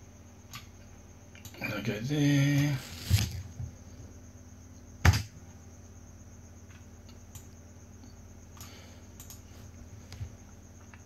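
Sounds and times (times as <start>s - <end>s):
low electrical hum: 0.0s - 11.0s
computer mouse clicks: 6.7s - 7.6s, 8.6s - 9.5s.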